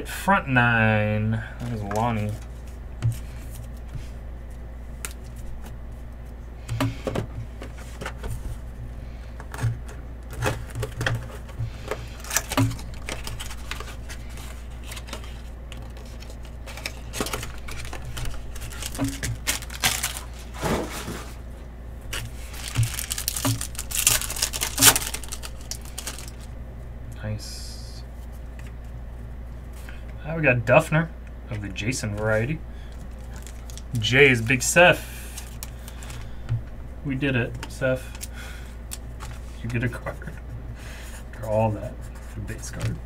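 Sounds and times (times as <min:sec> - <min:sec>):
low steady hum: 0:00.0 - 0:43.0
cards clicking and rustling: 0:09.4 - 0:20.8, 0:22.1 - 0:26.5, 0:32.1 - 0:34.6, 0:35.3 - 0:36.3, 0:37.5 - 0:40.4
foil pack crinkling and tearing: 0:11.8 - 0:21.1, 0:22.1 - 0:26.5, 0:32.9 - 0:36.4.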